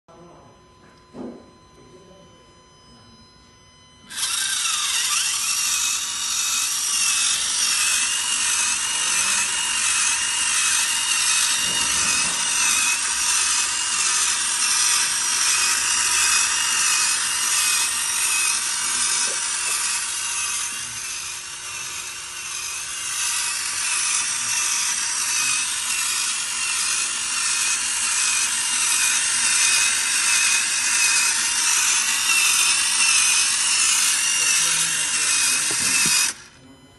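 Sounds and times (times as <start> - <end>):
electric motor whirring with whine: 0.1 - 36.9.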